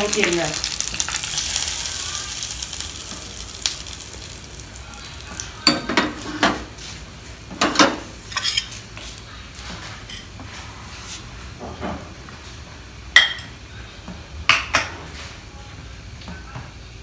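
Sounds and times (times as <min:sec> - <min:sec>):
hot oil sizzling: 0:00.0 - 0:11.3.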